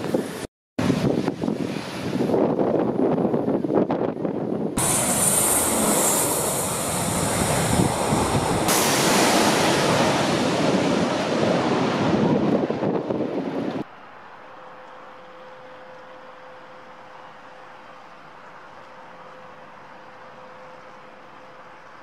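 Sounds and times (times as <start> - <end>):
wind on microphone: 0.0 - 13.8
aircraft engine noise: 4.5 - 13.8
engine whine: 4.8 - 22.0.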